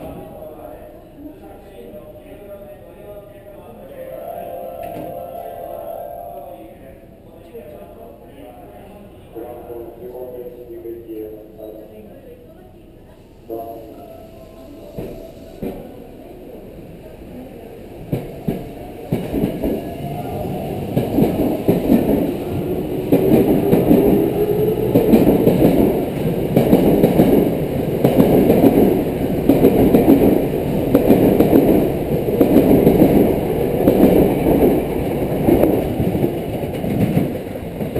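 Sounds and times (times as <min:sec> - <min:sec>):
train wheels clacking on rail joints: 0:20.8 - 0:37.9.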